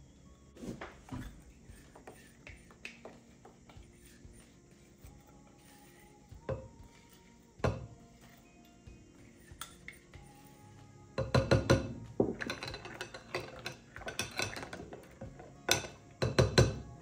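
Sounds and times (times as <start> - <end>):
utensil clinking against glass bowl: 11.2 - 16.9.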